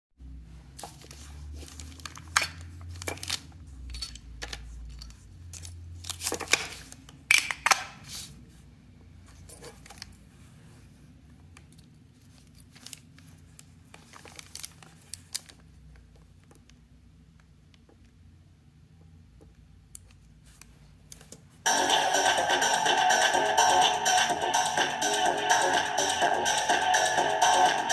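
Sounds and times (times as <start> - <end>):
paper crinkling: 0.8 - 7.0, 12.1 - 15.7.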